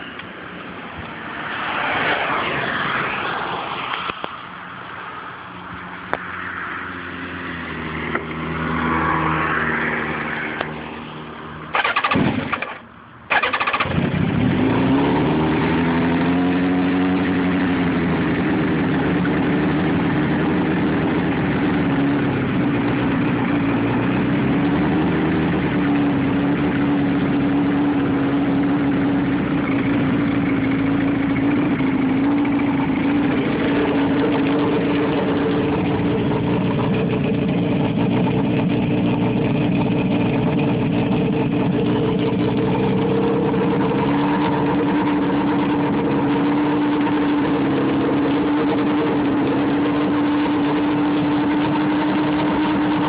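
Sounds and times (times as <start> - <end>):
motorcycle engine starting and idling: 11.6 - 53.0.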